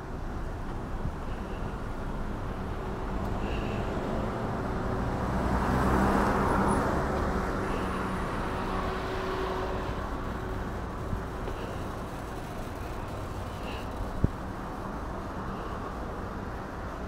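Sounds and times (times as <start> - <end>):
low traffic rumble: 0.0 - 17.0
car driving past: 3.2 - 10.5.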